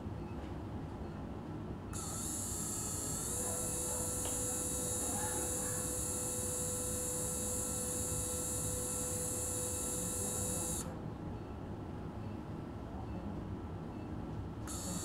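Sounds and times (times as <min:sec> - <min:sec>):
high-pitched drill whine: 0:02.0 - 0:10.8, 0:14.7 - 0:15.0.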